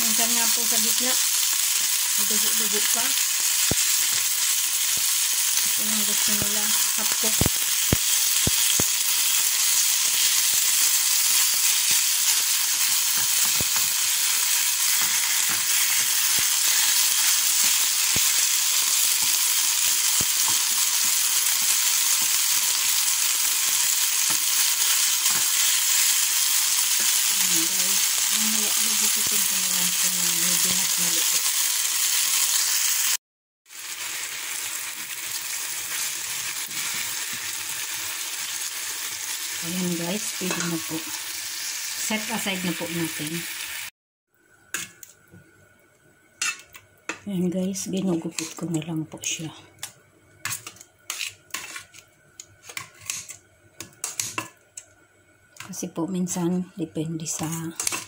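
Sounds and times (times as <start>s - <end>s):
meat sizzling in a frying pan: 0.0s - 43.9s, 46.3s - 56.5s, 57.1s - 58.0s
wooden spatula stirring: 50.4s - 52.0s.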